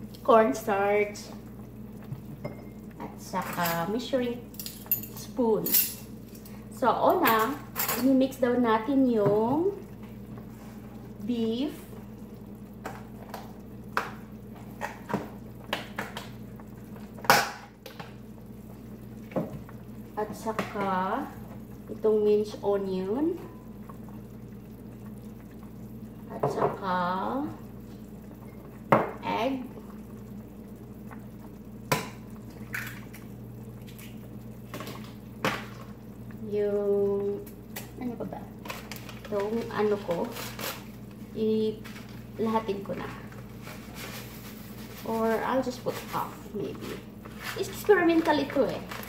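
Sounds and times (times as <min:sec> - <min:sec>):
steady low hum: 0:00.0 - 0:49.0
rustling and handling sounds: 0:43.4 - 0:49.0.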